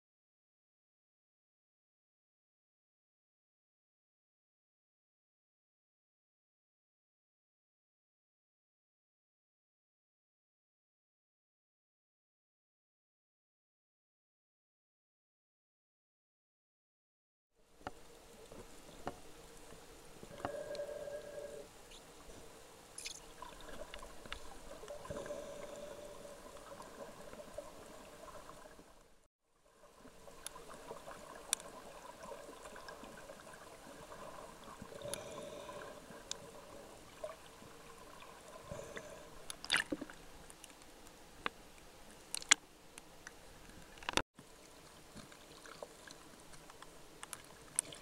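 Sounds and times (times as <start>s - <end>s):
muffled underwater water noise: 17.6s - 48.0s
faint clicks and crackles: 17.7s - 29.2s, 29.9s - 48.0s
water splashes: 21.9s - 29.1s, 29.7s - 40.4s, 44.5s - 48.0s.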